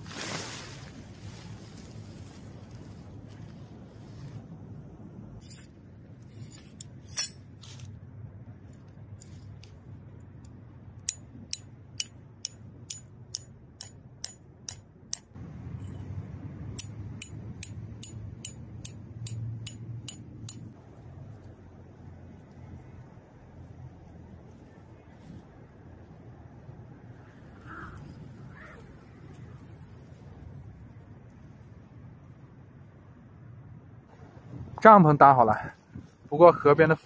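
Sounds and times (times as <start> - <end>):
hammer tapping metal stakes: 11.1 - 15.4, 16.8 - 20.7.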